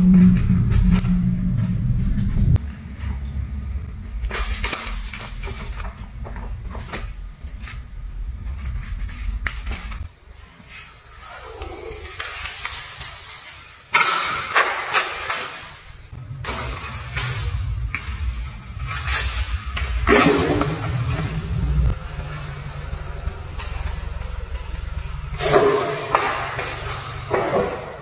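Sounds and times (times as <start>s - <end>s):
low steady rumble: 0.0s - 10.4s, 15.8s - 27.9s
crinkly paper rustling and crackling: 4.2s - 13.8s.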